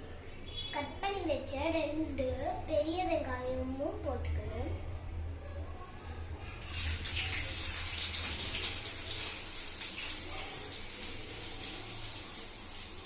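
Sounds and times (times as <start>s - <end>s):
onion sizzling in a hot pot: 6.6s - 13.0s.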